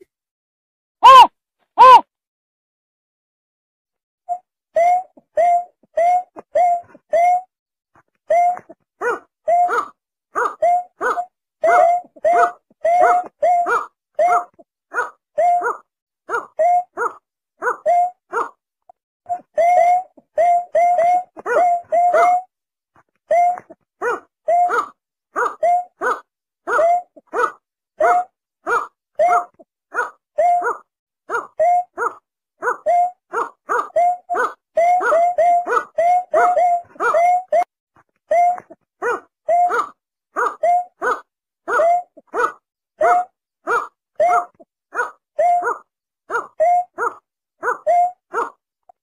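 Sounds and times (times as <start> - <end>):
snipe yelping calls: 1.0 - 2.0.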